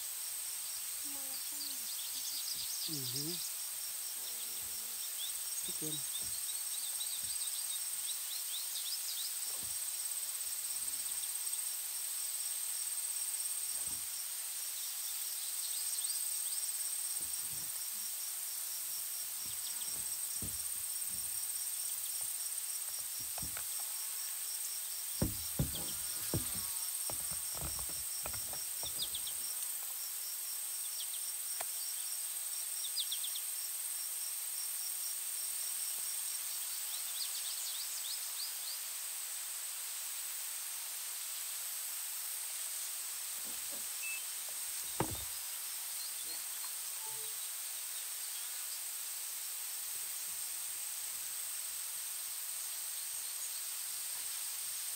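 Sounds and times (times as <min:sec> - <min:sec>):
insect high-pitched trill: 0:00.2 - 0:09.1, 0:46.0 - 0:47.6
insect pulsed chirping: 0:00.2 - 0:09.1
low knocks: 0:19.4 - 0:21.4, 0:23.2 - 0:23.6, 0:25.2 - 0:29.3, 0:45.0 - 0:45.3.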